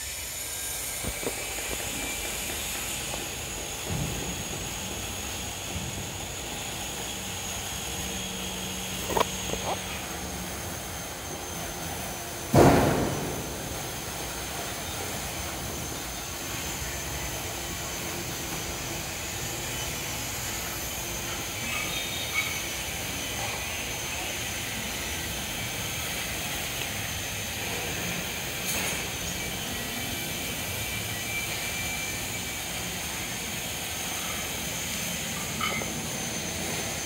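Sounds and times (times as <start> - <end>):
faint high whine: 0.0 - 37.0
loud thump: 12.5 - 13.6.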